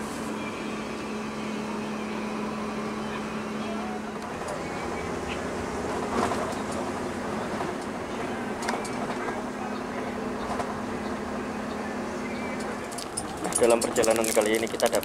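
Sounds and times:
diesel engine inside coach: 0.0 - 15.0
road noise: 0.0 - 15.0.

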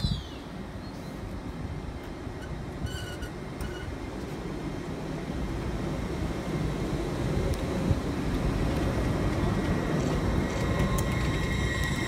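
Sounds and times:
train rumbling past slowly: 0.0 - 12.0
short high-pitched squeaks: 2.4 - 4.0.

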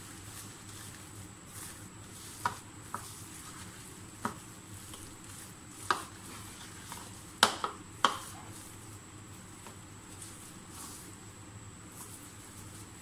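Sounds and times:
chicken mixed in thick batter: 0.0 - 7.4.

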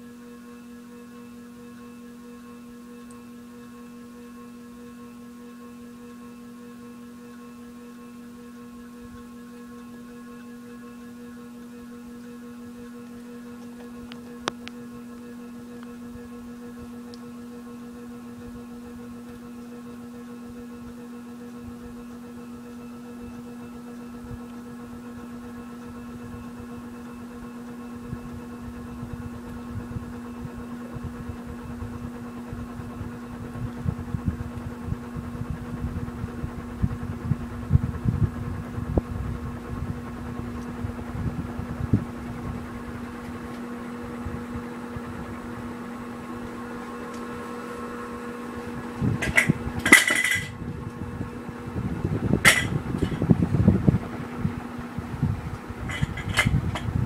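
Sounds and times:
ceiling fan motor hum: 0.0 - 57.0.

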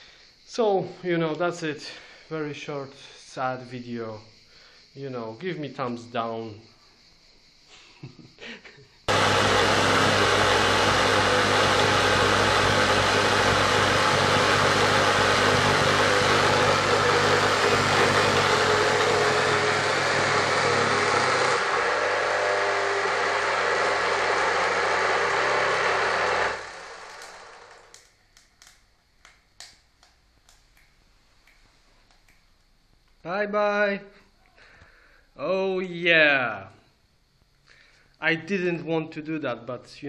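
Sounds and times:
electric motor running rough: 9.1 - 28.0.

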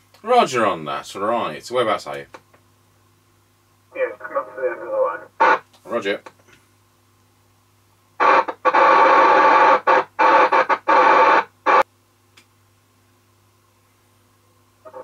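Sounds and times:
faint steady hum: 0.0 - 15.0
radio receiver hiss: 3.9 - 6.2, 8.2 - 11.9.

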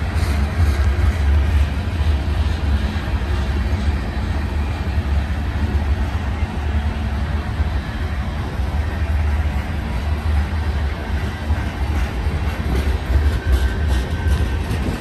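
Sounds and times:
freight train wheels rumbling: 0.0 - 15.0.

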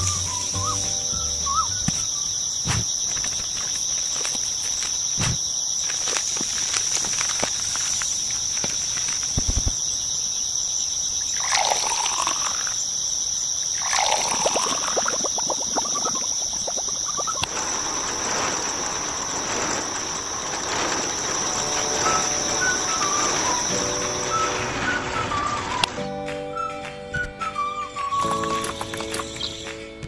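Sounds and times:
high insect chirr: 0.0 - 25.9, 27.5 - 29.8
water splashing and trickling: 11.2 - 12.8, 13.6 - 25.9, 28.2 - 29.6.

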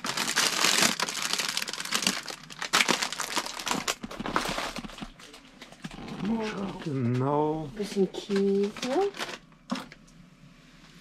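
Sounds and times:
plastic bag crinkling: 0.0 - 6.8, 8.2 - 9.8.

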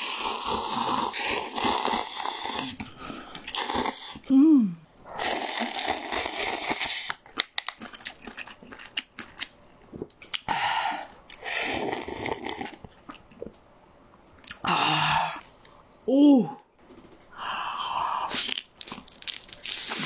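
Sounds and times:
slurping noodles: 0.0 - 4.3, 5.0 - 7.2, 11.4 - 12.8, 19.6 - 20.0
wet chewing clicks: 5.5 - 10.5.

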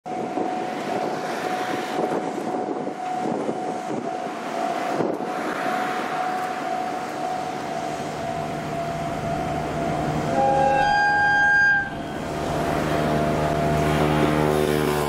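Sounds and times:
wind buffeting microphone: 0.1 - 10.4
steady high-pitched tone: 0.1 - 15.0
steady rushing noise: 0.1 - 15.0.

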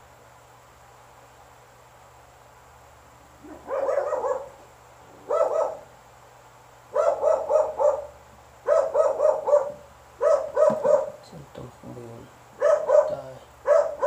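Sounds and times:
dog barking: 3.4 - 4.6, 5.2 - 5.9, 6.9 - 11.2, 12.6 - 14.0.

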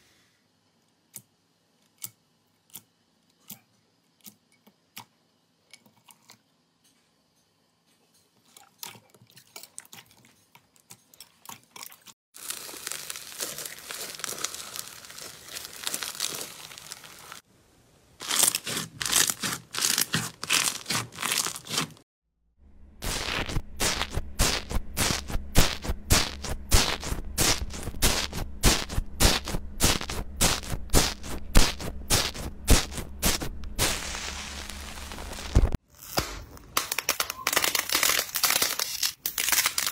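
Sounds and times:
slime crackling and popping: 12.4 - 17.4, 18.2 - 22.0, 23.0 - 39.9
low steady hum: 22.6 - 35.8.

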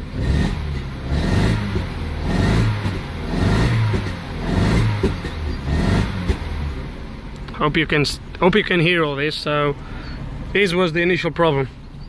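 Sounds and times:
car engine revving with misfire: 0.0 - 7.2.

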